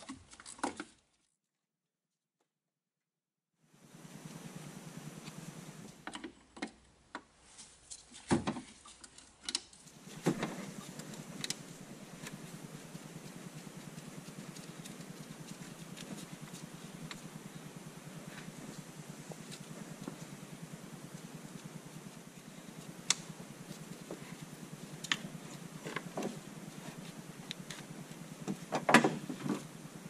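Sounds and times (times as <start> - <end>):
engine running steadily: 3.6 - 6.1, 9.8 - 30.0.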